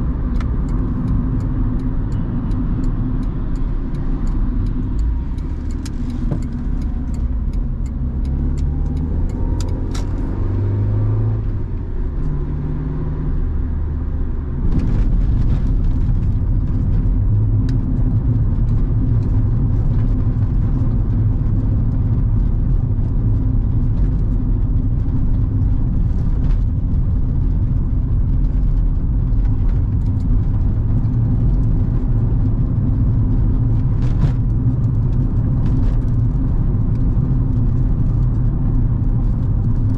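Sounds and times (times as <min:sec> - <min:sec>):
car engine driving: 0:00.0 - 0:39.9
tyres on the road: 0:00.0 - 0:39.9
short ticks from road surface: 0:00.3 - 0:10.3.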